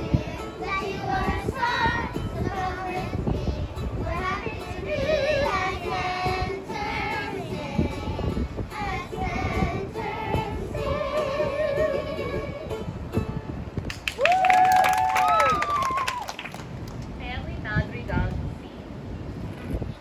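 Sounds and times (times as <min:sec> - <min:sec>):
children singing to music: 0:00.0 - 0:13.0.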